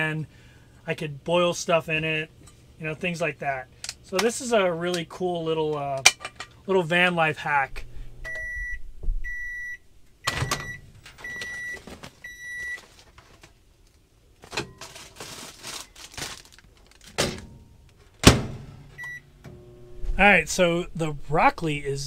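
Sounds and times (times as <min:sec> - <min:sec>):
microwave beeping: 0:08.2 - 0:12.8, 0:18.9 - 0:20.3
microwave door opening clunk: 0:10.3 - 0:10.8, 0:18.2 - 0:18.8
plastic bag crinkling: 0:11.8 - 0:13.6, 0:14.4 - 0:17.3.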